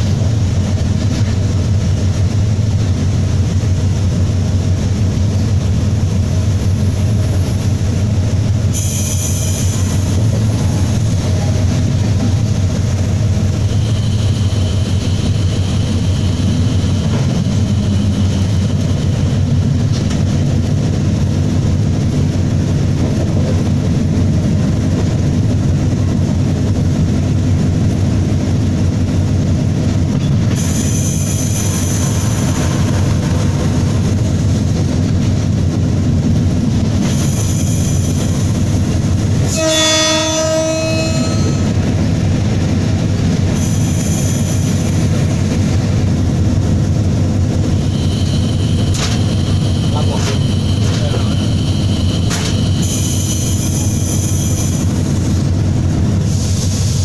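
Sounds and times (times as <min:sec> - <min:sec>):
locomotive engine drone: 0:00.0 - 0:57.0
locomotive horn: 0:39.4 - 0:41.8.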